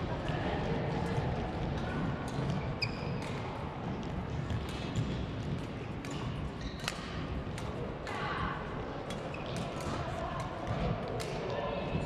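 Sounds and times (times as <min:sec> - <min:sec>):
rackets striking shuttlecock: 0:01.7 - 0:03.6, 0:04.3 - 0:08.2, 0:09.1 - 0:11.5
shoe squeak: 0:02.6 - 0:03.2.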